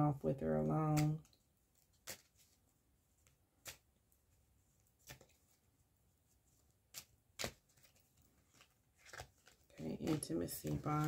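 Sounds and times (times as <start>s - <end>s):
cards snapping: 1.0s - 2.4s, 3.6s - 3.9s, 5.0s - 5.4s, 6.9s - 11.0s.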